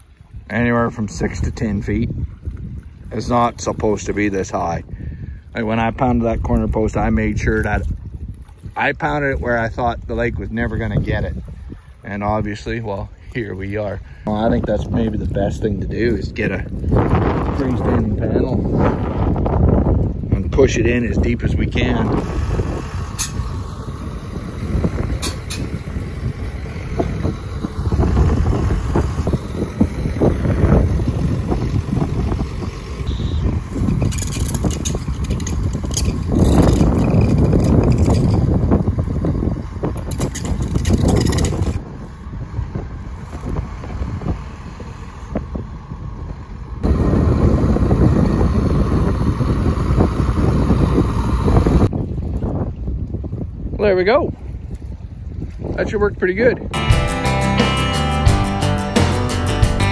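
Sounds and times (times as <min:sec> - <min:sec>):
wind buffeting microphone: 0:00.0 - 0:56.8
tractor diesel engine under load: 0:21.8 - 0:51.9.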